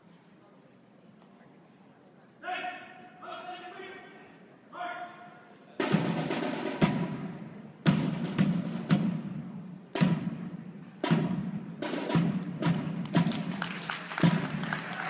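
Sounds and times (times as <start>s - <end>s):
snare and bass drum cadence: 5.8s - 15.0s.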